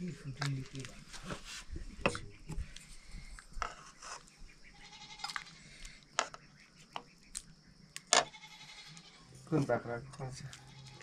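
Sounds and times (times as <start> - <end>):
goat bleating: 4.8 - 5.5, 8.3 - 9.3, 10.5 - 11.0.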